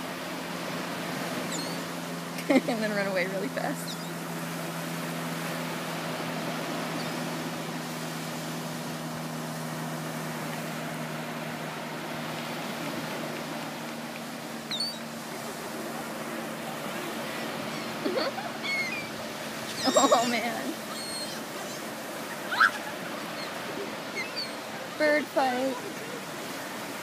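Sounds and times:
steady low hum: 0.0s - 27.0s
surf: 0.0s - 27.0s
wind: 0.0s - 27.0s
gull call: 14.7s - 15.0s, 17.6s - 24.8s.

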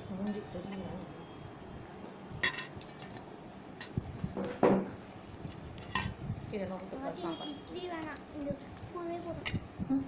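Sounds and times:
knock on plate: 4.4s - 4.9s.

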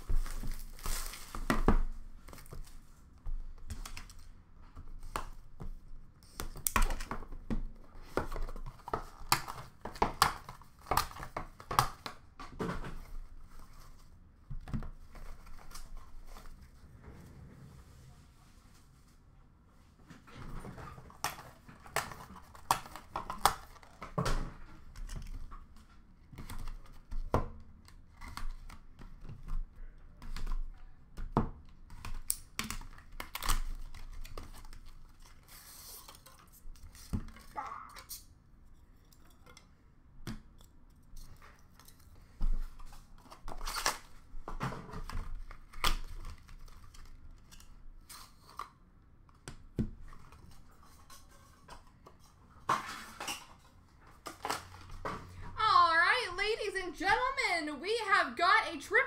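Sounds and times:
cardboard tearing and rustling: 0.0s - 2.8s.

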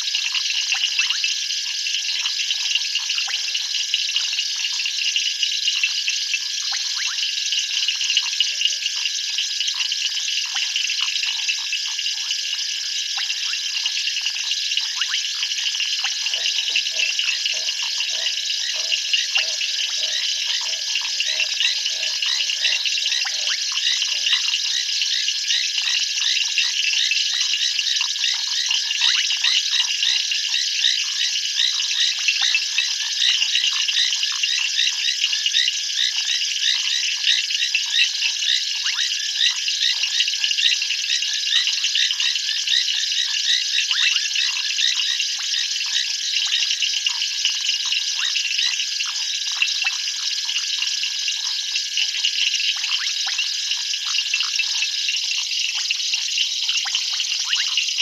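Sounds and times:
frogs and insects chirping: 0.0s - 58.0s
frogs croaking: 0.0s - 58.0s
constant high tone: 10.6s - 26.3s.

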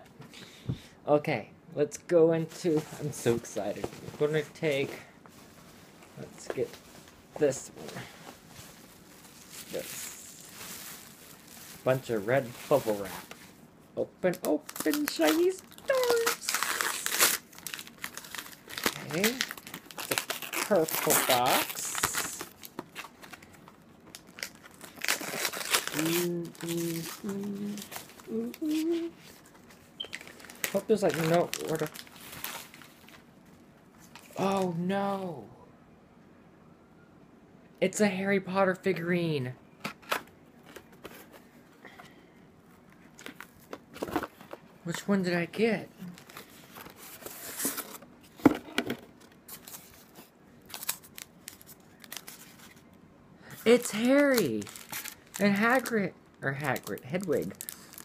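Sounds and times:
wrapping paper crinkling and tearing: 8.7s - 13.6s, 14.3s - 33.2s, 49.4s - 52.9s, 53.5s - 58.0s.

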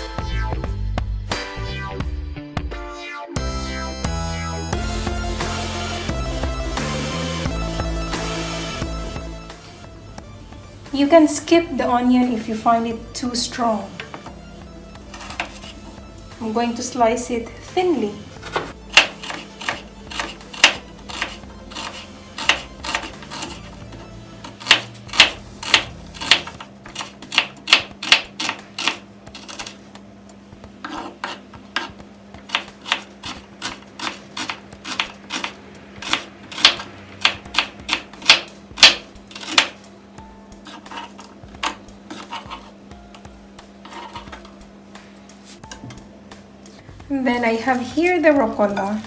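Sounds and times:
knife chopping on wooden board: 15.1s - 15.8s, 18.4s - 29.8s, 30.8s - 39.8s, 40.6s - 42.8s, 43.8s - 44.5s.

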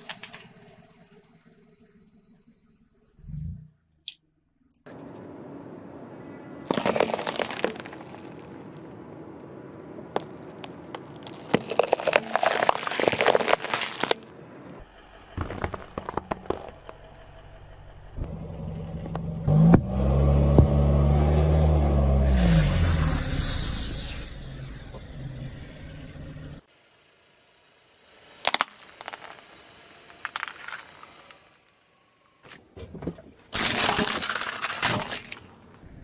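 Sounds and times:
tyre crushing peppers: 6.6s - 8.9s, 10.2s - 14.3s, 15.4s - 17.0s, 28.4s - 31.4s
car engine revving: 13.4s - 26.7s.

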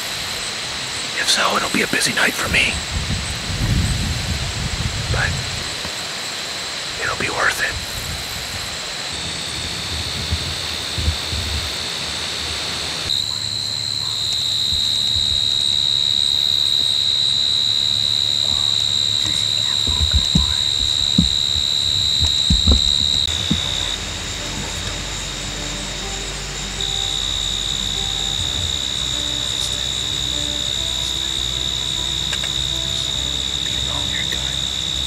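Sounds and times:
insects droning: 0.0s - 35.0s
knocks on microphone: 19.9s - 23.7s.

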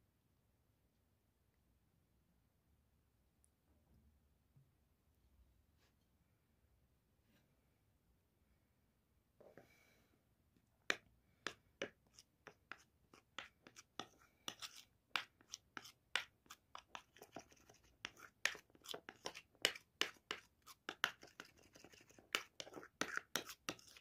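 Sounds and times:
metal spoon scraping ceramic bowl: 12.1s - 24.0s.

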